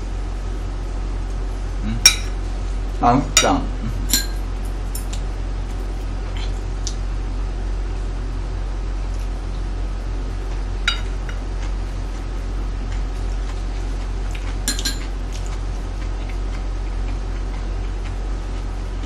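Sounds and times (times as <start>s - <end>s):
steady low hum: 0.0s - 19.0s
chopsticks clinking on dishes: 14.6s - 15.1s.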